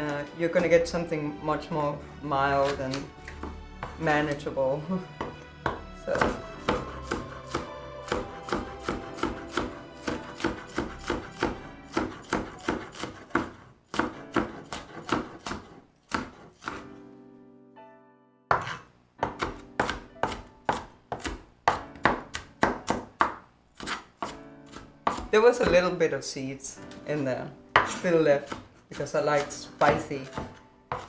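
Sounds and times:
knife chopping on wooden board: 2.6s - 4.0s, 5.2s - 16.9s, 18.5s - 25.9s, 27.8s - 31.0s.

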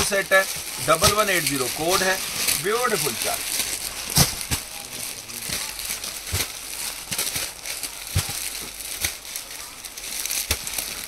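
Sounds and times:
packets thumping on floor: 0.0s - 4.8s
plastic wrapping crinkling: 0.0s - 11.0s.

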